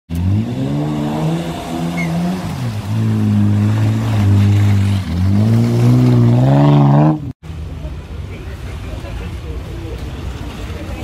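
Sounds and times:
off-road engine revving: 0.1s - 7.4s.

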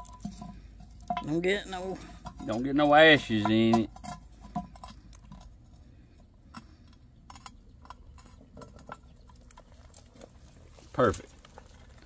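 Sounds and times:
metal lid clinks and scrapes: 0.0s - 5.5s.

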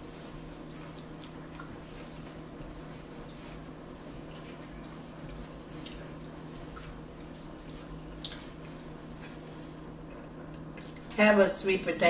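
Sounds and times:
chewing noises: 0.0s - 2.0s, 4.2s - 9.5s, 10.1s - 11.2s
steady low hum: 0.0s - 12.0s.

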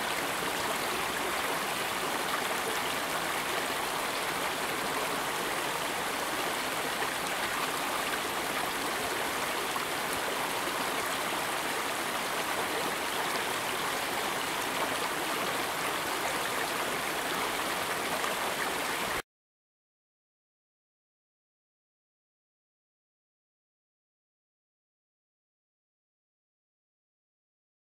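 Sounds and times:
stream running: 0.0s - 19.2s.

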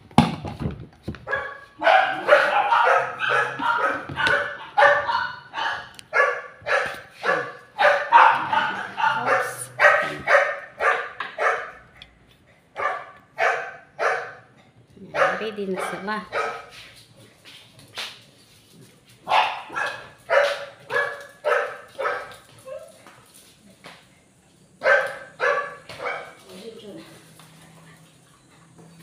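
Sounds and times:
small dogs barking: 1.2s - 12.0s, 12.8s - 16.8s, 19.2s - 23.0s, 24.8s - 26.5s.

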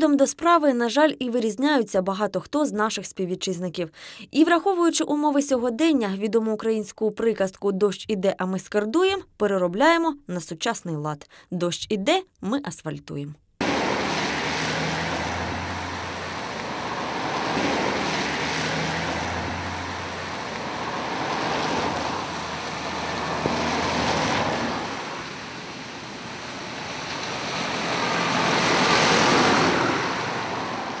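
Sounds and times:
low engine hum: 13.6s - 31.0s
tyres hissing on wet road: 13.6s - 31.0s.

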